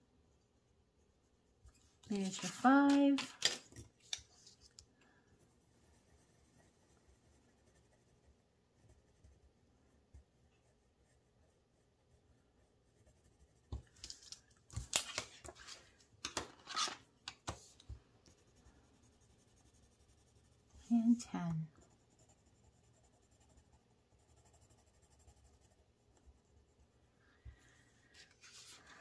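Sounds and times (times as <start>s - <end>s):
paper rustling and crinkling: 1.8s - 4.8s, 13.8s - 17.9s.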